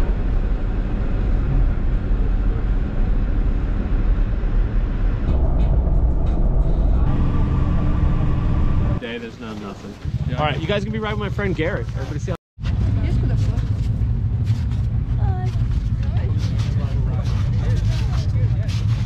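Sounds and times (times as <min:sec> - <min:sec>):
steady hum: 0:00.0 - 0:09.2
vehicle road and engine rumble: 0:00.0 - 0:19.0.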